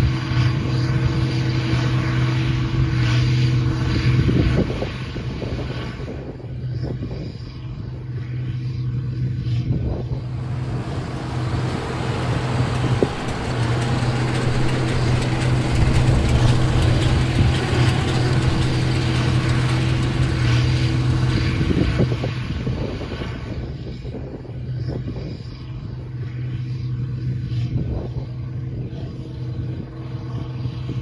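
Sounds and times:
diesel tractor running under load: 0:00.0 - 0:05.0, 0:09.4 - 0:24.0.

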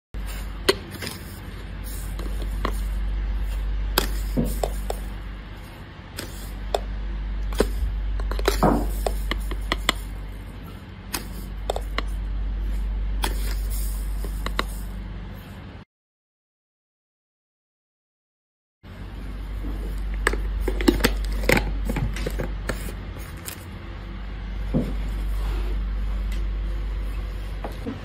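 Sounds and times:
low hum: 0:00.2 - 0:15.8, 0:18.9 - 0:28.0.

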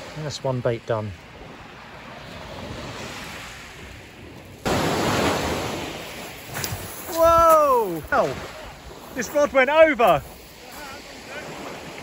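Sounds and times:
sea surf: 0:00.0 - 0:12.0
wave breaking and rushing up beach: 0:00.0 - 0:12.0
light wind hiss: 0:03.2 - 0:12.0.

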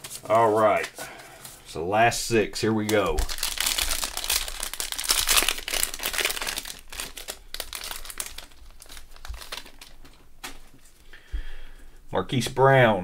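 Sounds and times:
plastic wrapper crinkling: 0:02.7 - 0:11.0.

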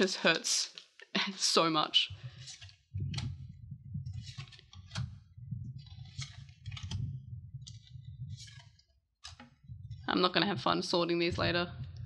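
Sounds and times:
low rumble: 0:02.0 - 0:08.8, 0:09.6 - 0:12.0
cards flicked with papery snap: 0:06.0 - 0:07.0, 0:07.7 - 0:09.5.

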